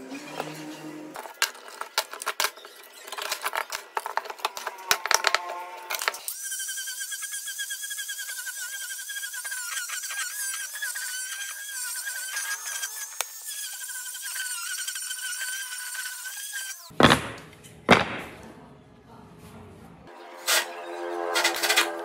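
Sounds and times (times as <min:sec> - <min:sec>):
angle grinder sanding wood: 0:03.5 - 0:16.9, 0:20.2 - 0:22.0.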